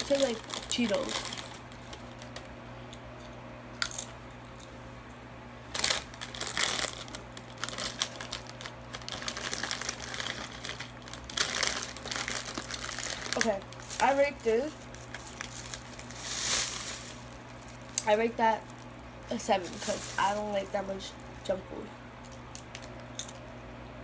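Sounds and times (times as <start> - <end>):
chips crunching: 0.0 - 2.5, 3.3 - 4.8, 5.7 - 21.5, 22.2 - 23.5
foil bag crinkling: 0.0 - 2.5, 5.6 - 21.6.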